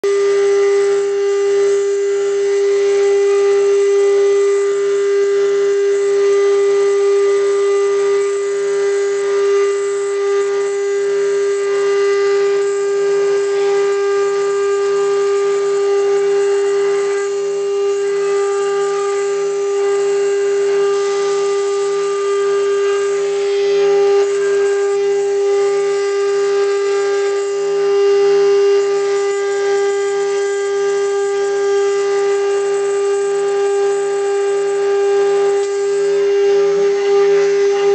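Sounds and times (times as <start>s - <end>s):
router spindle whining: 0.0s - 37.9s.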